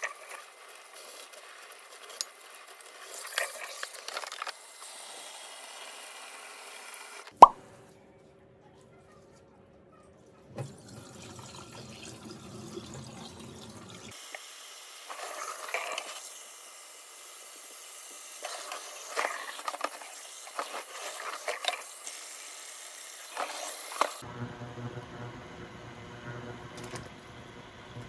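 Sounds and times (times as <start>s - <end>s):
tap water running into steel bowl: 10.6s - 14.4s.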